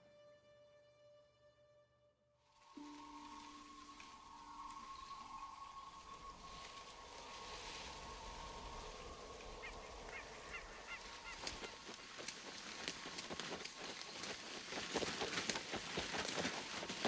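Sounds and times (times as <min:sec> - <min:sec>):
faint steady tone: 0:02.5 - 0:13.2
bird chirping: 0:02.6 - 0:14.6.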